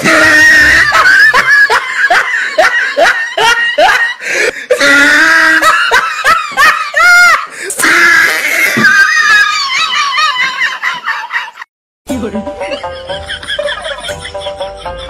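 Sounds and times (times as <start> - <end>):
person crying out loudly: 0.0 - 1.5
person laughing: 0.0 - 7.4, 12.3 - 15.0.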